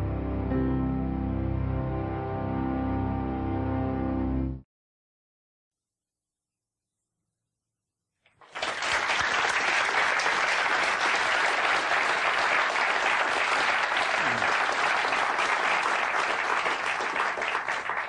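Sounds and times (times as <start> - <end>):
large audience applauding: 8.3 - 18.0.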